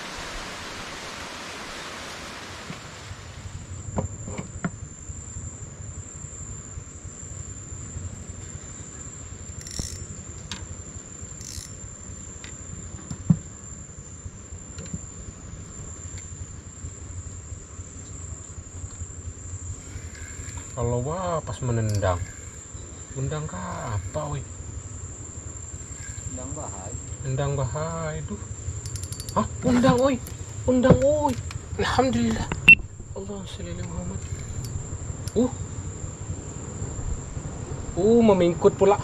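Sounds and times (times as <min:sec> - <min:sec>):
high-pitched insect call: 0:01.2 - 0:39.0.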